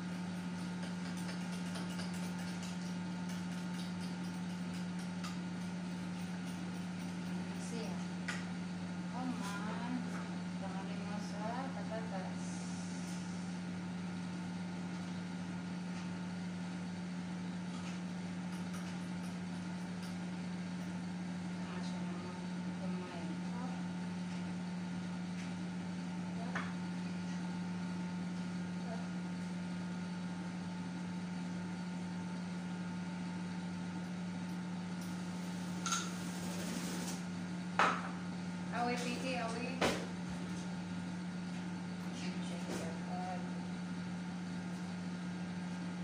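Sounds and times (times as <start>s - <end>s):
low machine hum: 0.0s - 46.0s.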